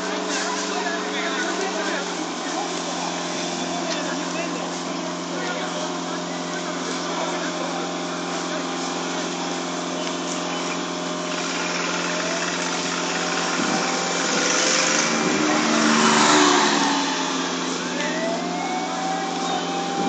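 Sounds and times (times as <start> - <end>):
engine running steadily: 0.0 - 20.0
rising whine: 7.8 - 20.0.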